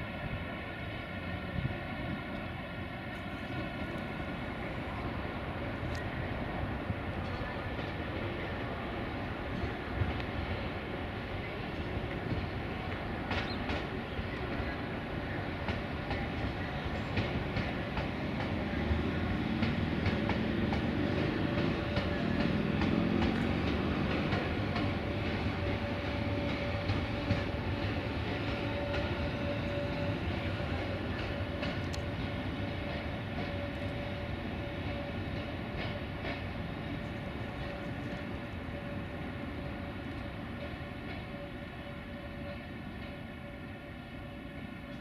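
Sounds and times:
steady train whine: 0:00.0 - 0:45.0
train wheels ticking over rail joints: 0:11.7 - 0:43.4.

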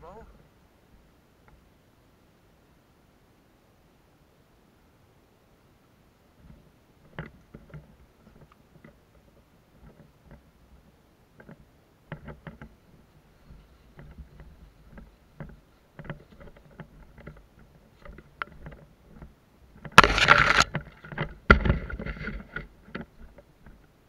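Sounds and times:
branches brushing against body: 0:19.9 - 0:22.5.

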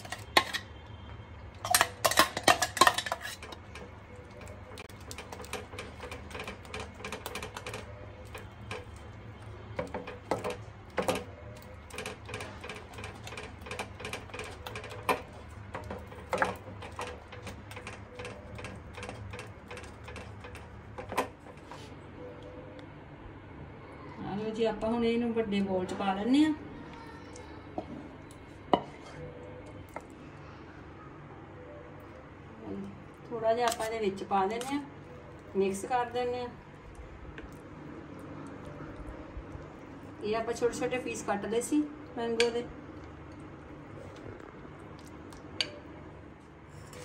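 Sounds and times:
spatula scraping a pan: 0:00.0 - 0:00.7, 0:01.7 - 0:03.8, 0:46.7 - 0:47.0.

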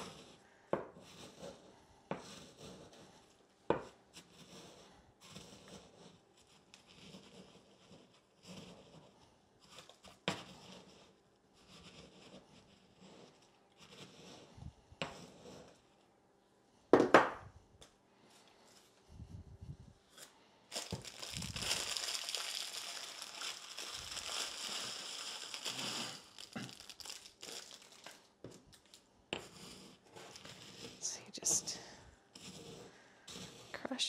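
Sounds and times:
small scrapes and taps: 0:03.7 - 0:16.1, 0:28.0 - 0:31.7
crackers crunching and grinding: 0:20.1 - 0:30.9.

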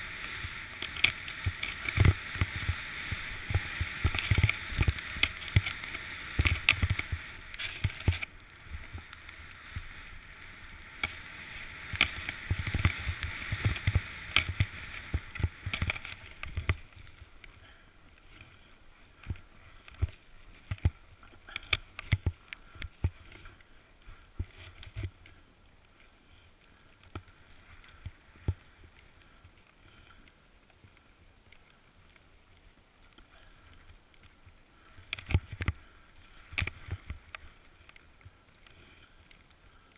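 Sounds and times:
snowboard hissing through snow: 0:00.0 - 0:15.7.

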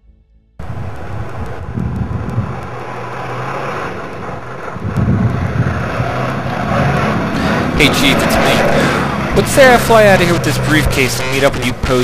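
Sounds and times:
car engine driving on dirt: 0:00.6 - 0:12.0.

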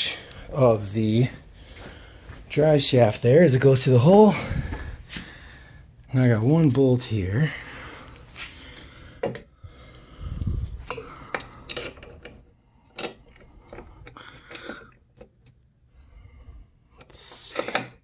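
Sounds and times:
low rumble: 0:10.0 - 0:10.9.

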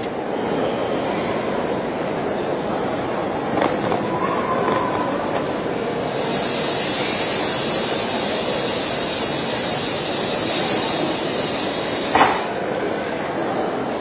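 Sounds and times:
rushing noise of station hall: 0:00.0 - 0:14.0
loud high hiss: 0:05.8 - 0:12.8.

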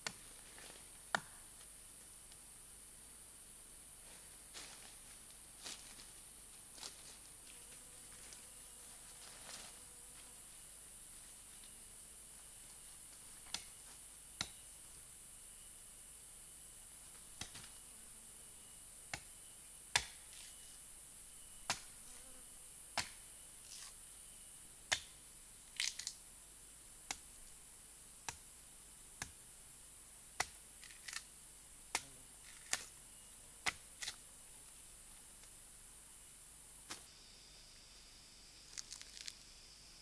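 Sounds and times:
high-pitched insect drone: 0:37.0 - 0:40.0.

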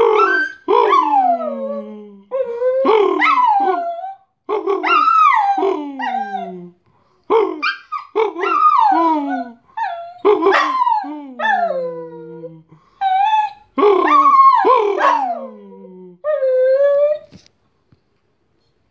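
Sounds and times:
dog howling: 0:00.0 - 0:04.2, 0:07.5 - 0:17.3.

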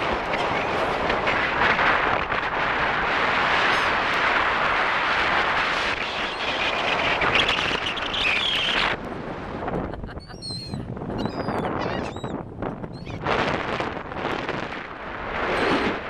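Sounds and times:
surf: 0:00.0 - 0:10.2, 0:13.2 - 0:16.0
wind rushing: 0:00.0 - 0:16.0
gull call: 0:10.0 - 0:12.3.

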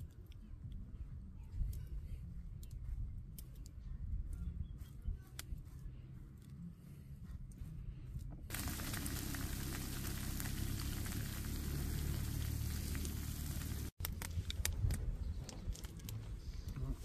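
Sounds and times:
food sizzling in a frying pan: 0:08.5 - 0:13.9.

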